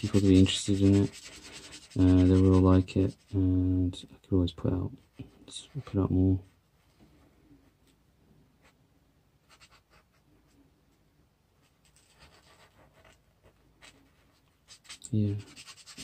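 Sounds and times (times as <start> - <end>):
marker scratching on paper: 0.0 - 3.4, 9.5 - 10.2, 12.0 - 13.2, 14.7 - 16.0.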